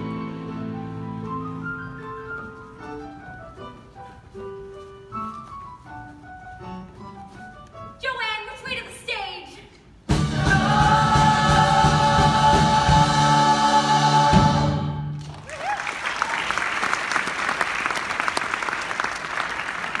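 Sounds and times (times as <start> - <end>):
band accompaniment: 10.0 - 15.3
cast singing in chorus: 10.2 - 14.9
audience applauding and cheering: 15.1 - 20.0.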